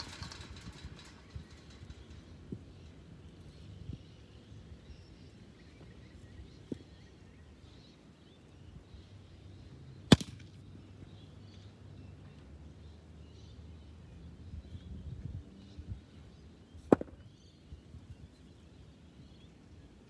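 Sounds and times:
cricket bat striking ball: 16.9 - 17.2.

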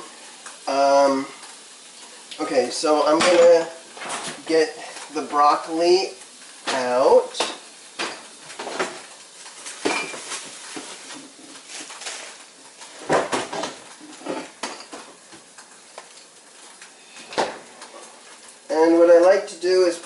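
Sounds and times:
items knocking and clinking in fridge: 6.7 - 9.1, 9.8 - 12.3, 12.9 - 15.5.

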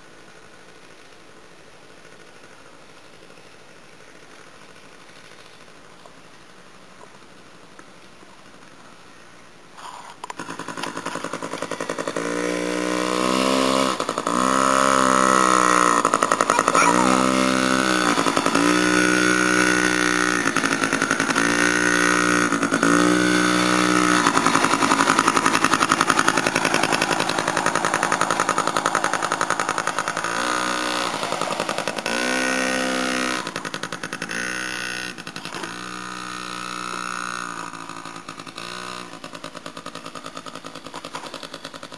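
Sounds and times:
dirt bike engine revving: 10.2 - 41.9.

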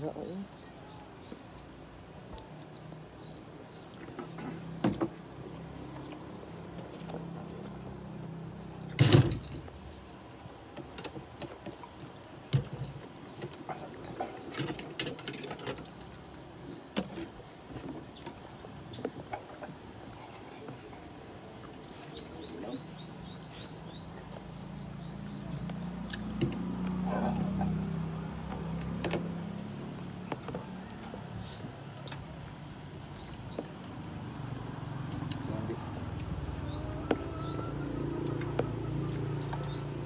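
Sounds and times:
small birds chirping: 0.0 - 40.0
chewing and lip smacking: 19.2 - 36.8, 37.4 - 40.0.

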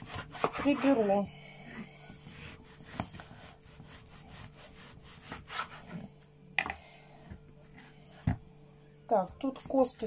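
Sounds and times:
knife sawing through meat: 0.0 - 5.8.

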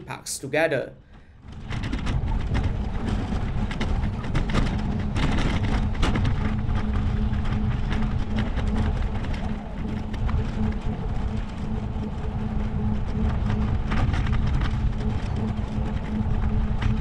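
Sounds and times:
bicycle clicks and rattles: 1.4 - 11.4
wind buffeting microphone: 1.4 - 17.0.

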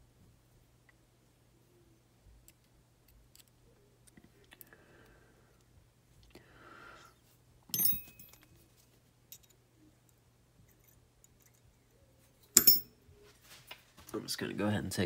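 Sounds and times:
ringing metal clink: 7.7 - 8.5, 12.6 - 13.0.

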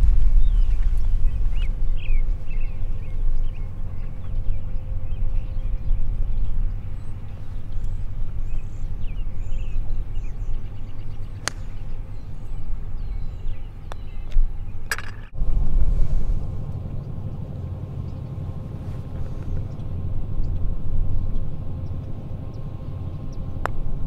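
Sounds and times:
birds chirping: 0.0 - 24.0
wind rumble on microphone: 0.0 - 24.0
putter striking golf ball: 11.3 - 12.1, 14.9 - 15.4.

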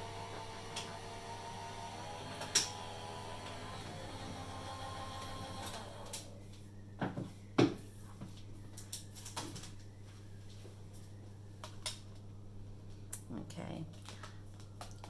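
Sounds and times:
die-cutting machine running: 0.0 - 6.3.

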